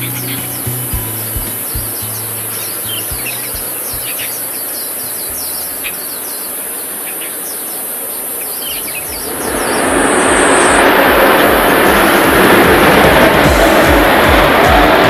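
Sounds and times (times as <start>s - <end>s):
birds chirping: 0.0s - 14.2s
jet engine rushing: 8.8s - 15.0s.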